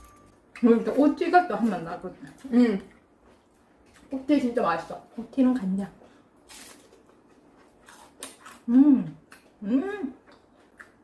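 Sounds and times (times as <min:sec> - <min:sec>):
eating crunches: 0:06.4 - 0:09.6
woman humming: 0:08.7 - 0:10.2.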